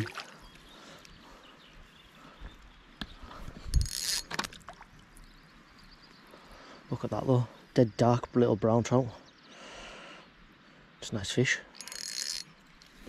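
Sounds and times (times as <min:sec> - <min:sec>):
water splashing: 0:00.0 - 0:00.4.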